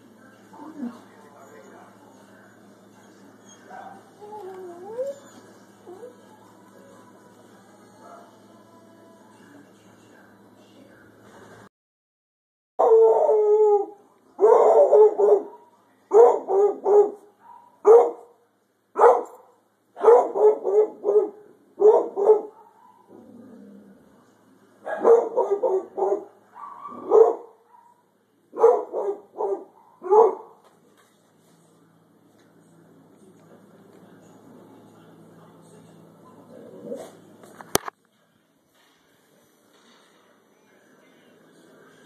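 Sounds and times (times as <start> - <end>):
dog barking: 3.7 - 4.1, 14.4 - 18.3, 19.0 - 23.2, 24.9 - 30.6.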